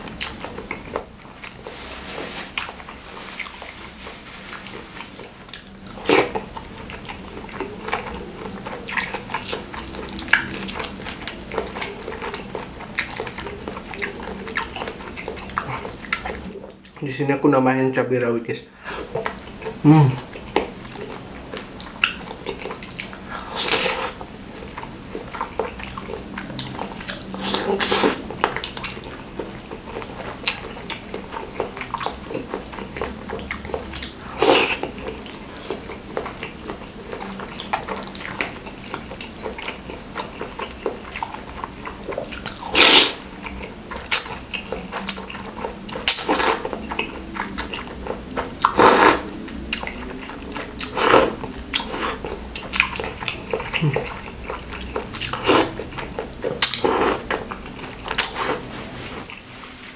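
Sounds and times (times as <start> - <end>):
wet chewing and lip-smacking: 0.0 - 1.8, 2.5 - 17.1, 19.0 - 59.5
loud noodle slurps: 42.7 - 43.2, 48.6 - 49.3, 50.8 - 52.2, 55.3 - 55.8, 56.6 - 57.3.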